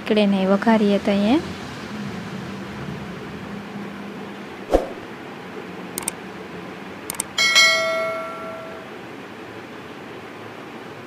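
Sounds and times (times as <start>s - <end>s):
mouse clicks: 6.0s - 6.2s
bell ding: 7.4s - 8.9s.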